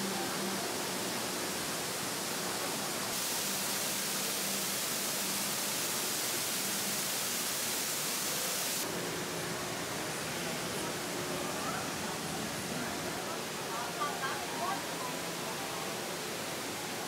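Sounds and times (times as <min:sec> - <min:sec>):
indoor waterfall hiss: 0:00.0 - 0:17.0.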